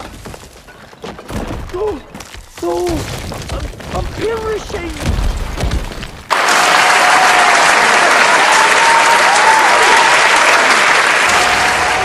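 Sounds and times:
crowd applauding: 6.3s - 12.0s.

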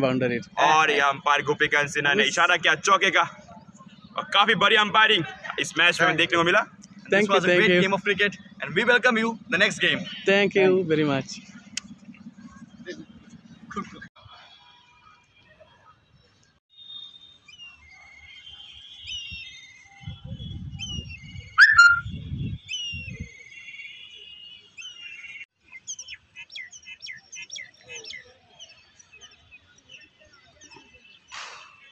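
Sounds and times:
birds chirping and whistling: 17.4s - 23.8s, 24.7s - 31.9s
wind rumble on microphone: 19.9s - 23.3s.

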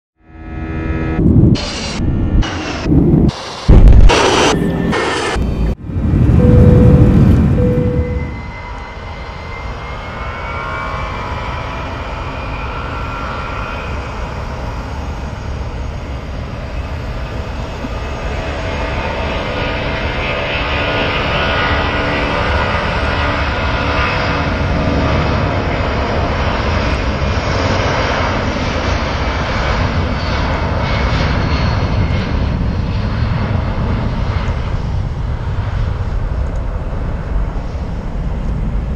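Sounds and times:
loud intro sound: 0.8s - 8.4s
jet engines spooling up: 0.8s - 38.9s.

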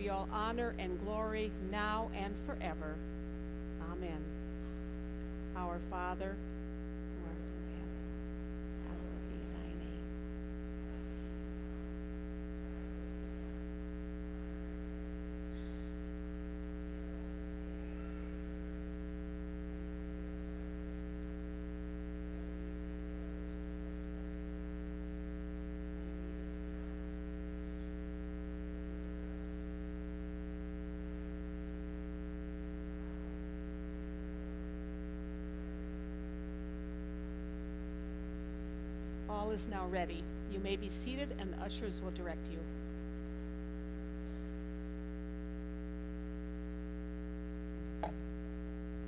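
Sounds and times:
electrical mains hum: 0.0s - 49.0s.

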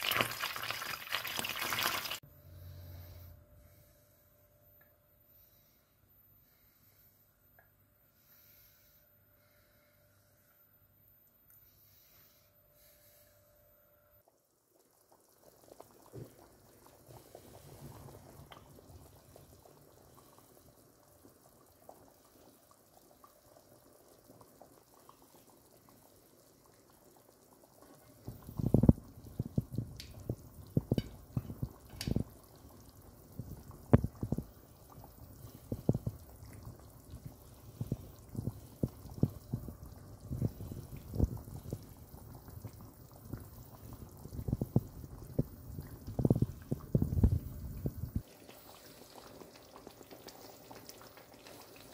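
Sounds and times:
sauce bubbling in a frying pan: 0.0s - 2.2s, 14.3s - 51.9s.

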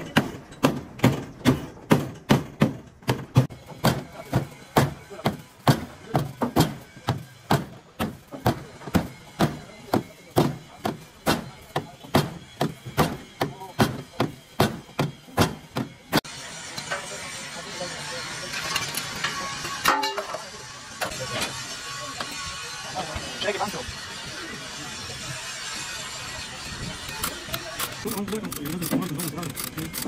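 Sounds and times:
hammer striking: 0.0s - 17.0s.

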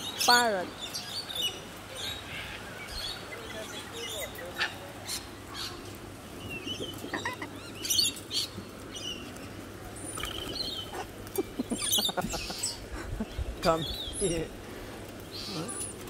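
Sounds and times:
cockatoos chirping and squawking: 0.0s - 14.4s
wings flapping: 9.2s - 12.7s.

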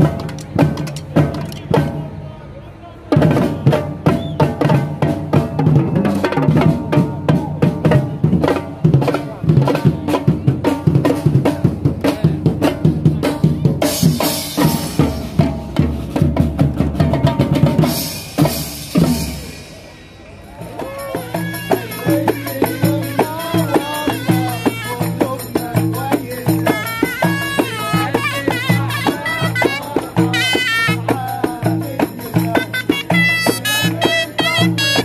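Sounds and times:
snare and bass drums playing: 0.0s - 2.0s, 3.2s - 20.0s.

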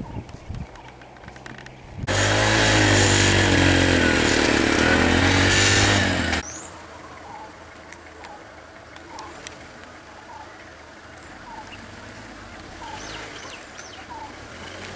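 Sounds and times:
motorcycle engine running: 2.0s - 6.4s.

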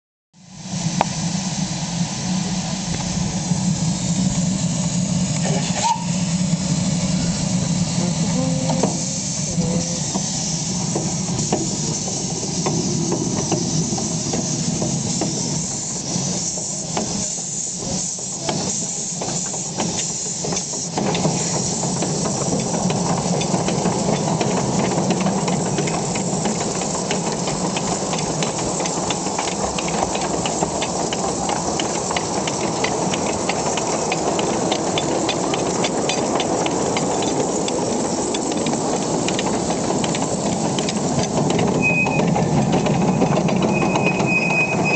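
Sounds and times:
steam locomotive hissing: 0.4s - 44.9s.

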